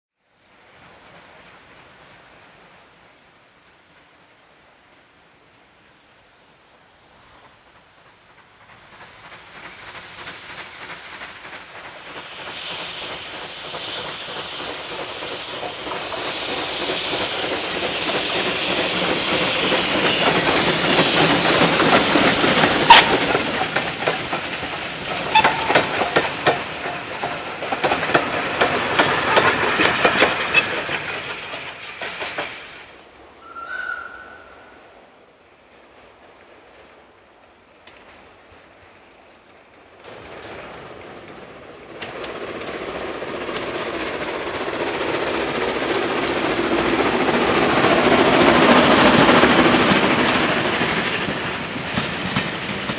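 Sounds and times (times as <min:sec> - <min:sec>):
steam train passing: 0:00.4 - 0:52.9
wheels clicking on rails: 0:08.6 - 0:32.7, 0:40.8 - 0:52.9.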